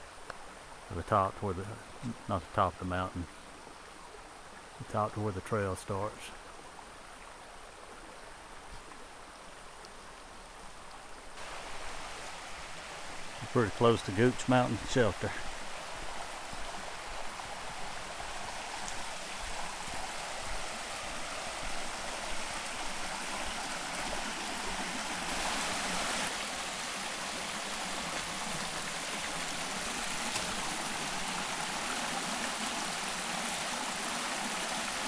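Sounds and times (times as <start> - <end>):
creek rushing over rocks: 11.4 - 35.0.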